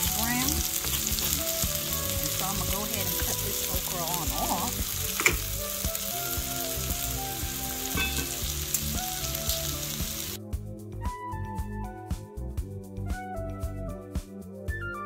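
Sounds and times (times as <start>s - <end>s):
vegetables sizzling in oil: 0.0s - 10.4s
background music: 0.0s - 15.0s
spoon knocking against pan: 7.9s - 8.5s.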